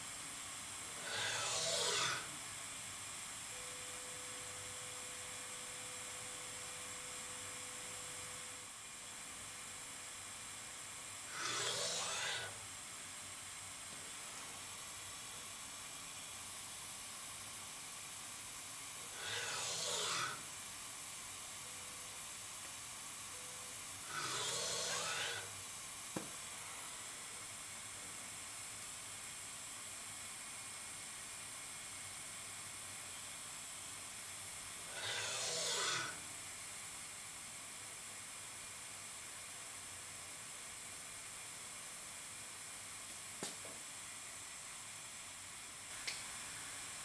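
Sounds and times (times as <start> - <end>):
louder hissing bursts: 0.0 - 3.2, 10.9 - 27.6, 34.7 - 36.3
machine steady hiss: 0.0 - 47.0.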